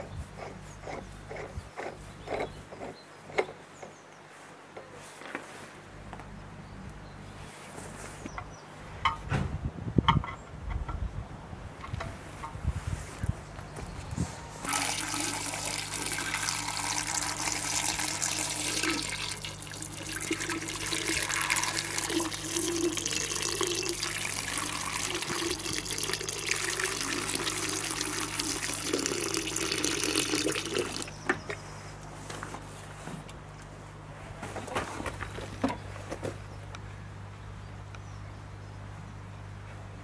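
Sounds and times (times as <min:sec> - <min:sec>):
water pouring into a tank: 0:14.6 - 0:31.1.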